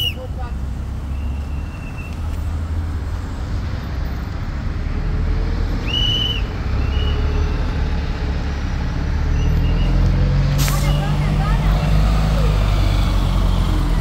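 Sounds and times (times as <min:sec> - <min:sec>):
road traffic rumble: 0:00.0 - 0:14.0
short high-pitched whistle: 0:05.9 - 0:07.4.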